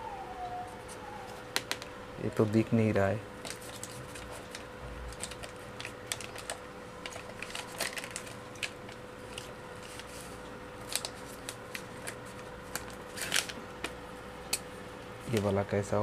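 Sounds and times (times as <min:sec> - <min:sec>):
faint steady hum: 0:00.0 - 0:16.0
plastic sleeve crinkling: 0:03.4 - 0:13.6.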